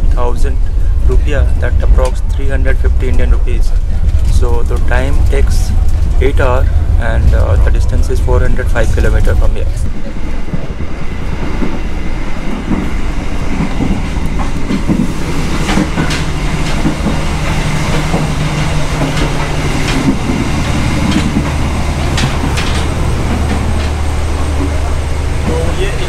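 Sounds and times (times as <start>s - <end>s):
train wheels rumbling: 0.0s - 26.0s
wheels clicking on rails: 0.0s - 26.0s.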